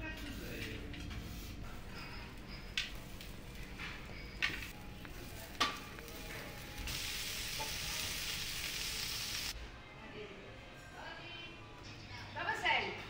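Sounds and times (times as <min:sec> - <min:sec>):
food sizzling in oven: 0:02.3 - 0:09.6.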